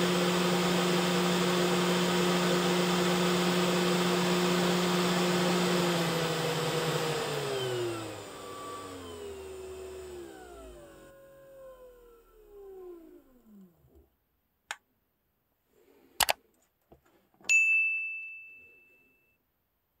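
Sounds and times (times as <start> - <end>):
sharp clicks: 16.2 - 16.4
bell ding: 17.5 - 19.4.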